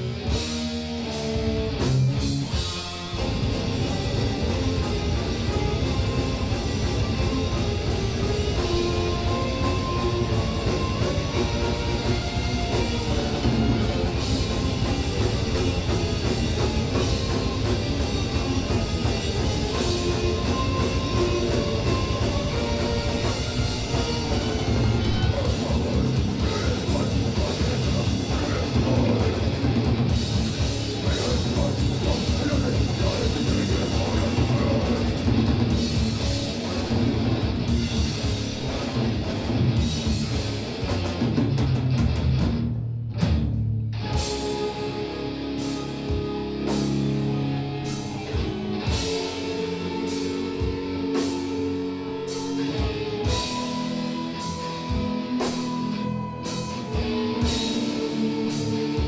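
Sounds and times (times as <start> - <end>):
distorted electric guitars: 0.0 - 59.0
drum kit: 0.0 - 59.0.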